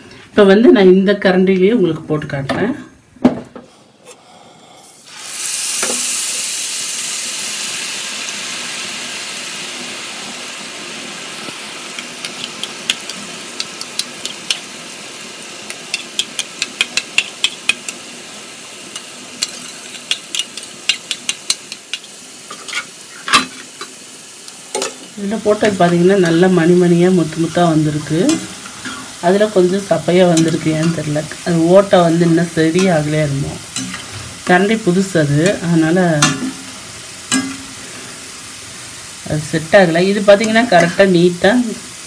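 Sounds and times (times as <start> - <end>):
batter sizzling in hot oil: 4.8 - 42.0
oil popping and clicking: 12.2 - 14.6, 15.7 - 17.8.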